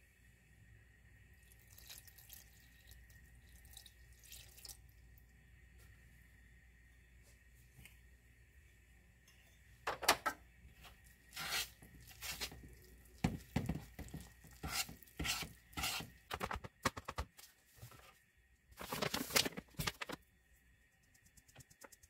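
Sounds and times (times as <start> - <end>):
wooden spoon stirring dough: 10.8 - 16.4
sieve shaking flour: 11.3 - 12.6.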